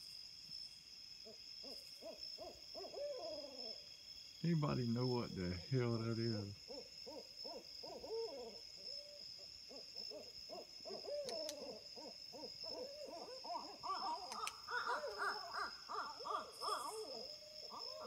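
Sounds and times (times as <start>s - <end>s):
owls hooting and cackling: 1.6s - 3.8s, 6.7s - 18.0s.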